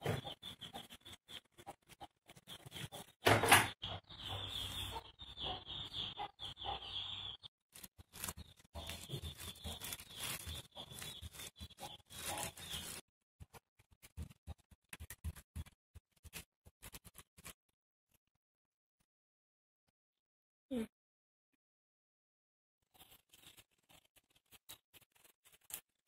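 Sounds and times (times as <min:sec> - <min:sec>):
plastic crinkling and rustling: 0:07.7 - 0:13.0.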